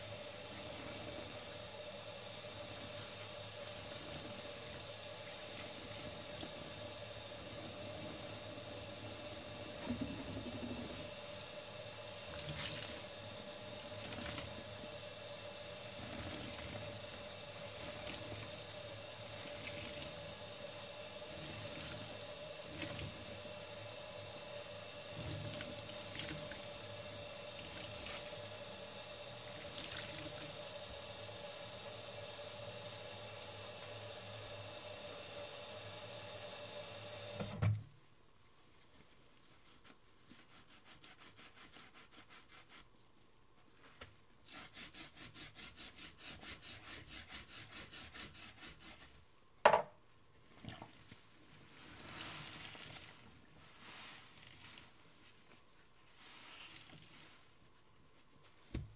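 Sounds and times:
soapy sponge squishing: 12.2s - 14.8s, 15.8s - 30.8s, 38.0s - 49.3s, 50.2s - 58.9s
tap water running into sink: 24.8s - 31.1s, 37.2s - 37.8s.

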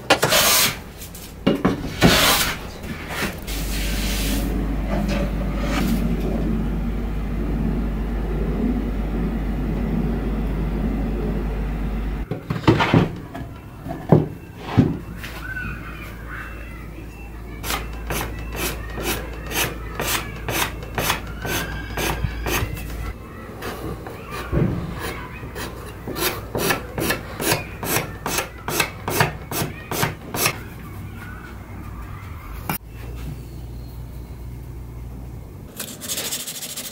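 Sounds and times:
steel tool scraping wood: 0.1s - 0.8s, 1.9s - 4.5s, 17.6s - 22.8s, 23.6s - 30.6s
steady low hum: 0.7s - 12.4s.

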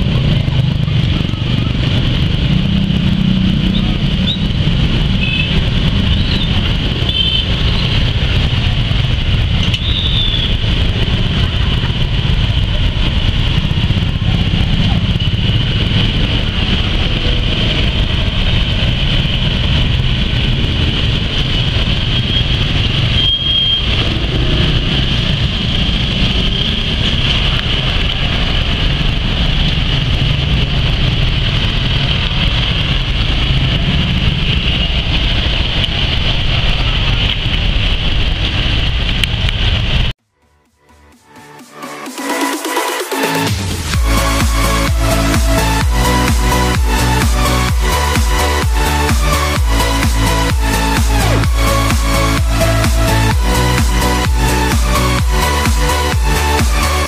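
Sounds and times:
heavy rain: 0.0s - 40.2s.

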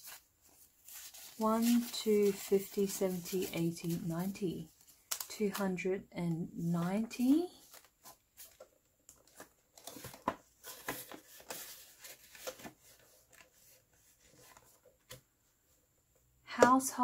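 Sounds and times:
banknotes and plastic crinkling: 0.0s - 5.8s, 6.5s - 14.8s.

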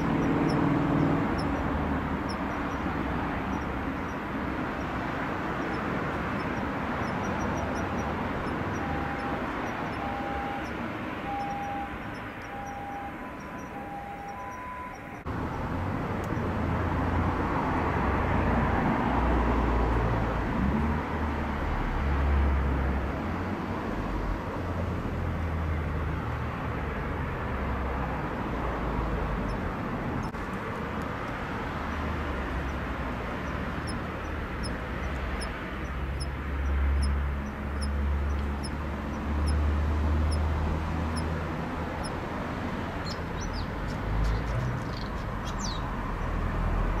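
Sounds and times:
cricket high ticks: 0.0s - 15.6s, 28.3s - 47.0s.

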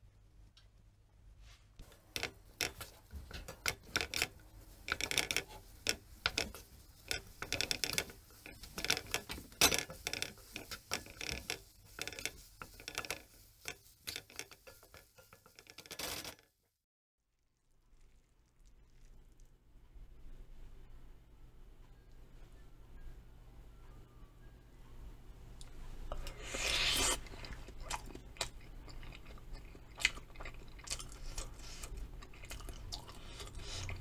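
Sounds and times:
spatula scraping a wok: 1.8s - 16.4s, 26.1s - 27.2s.

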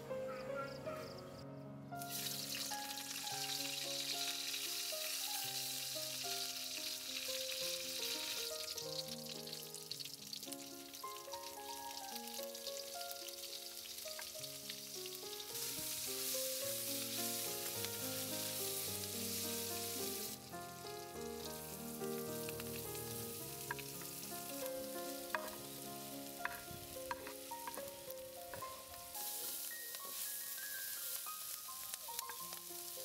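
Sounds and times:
soft background music: 0.0s - 33.0s
food sizzling in hot oil: 2.0s - 33.0s
spoon tapping pan: 23.6s - 24.1s, 25.1s - 25.8s, 26.4s - 28.9s.

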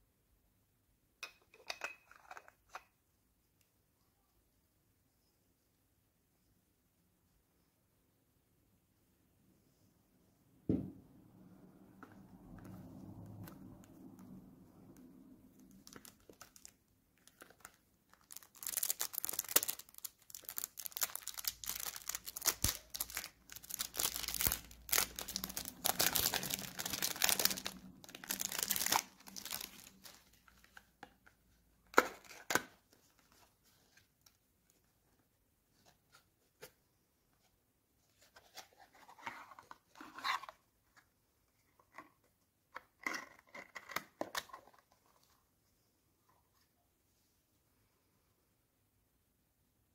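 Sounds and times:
plastic wrapping tearing and crinkling: 15.6s - 30.8s.

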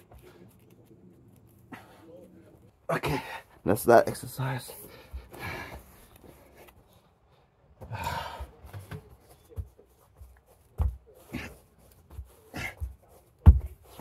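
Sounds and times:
person breathing hard: 7.8s - 8.7s
body thumping on floor: 13.4s - 14.0s.

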